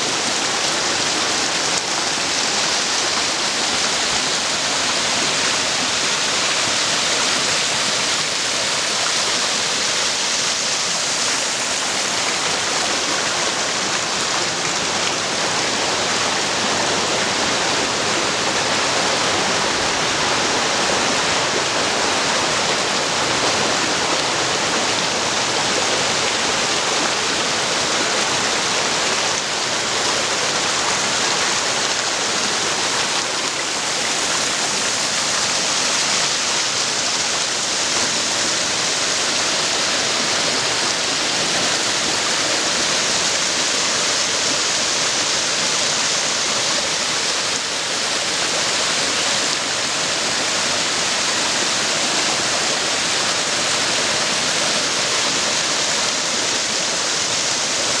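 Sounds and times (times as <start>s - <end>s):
water rushing over boulders: 0.0s - 58.0s.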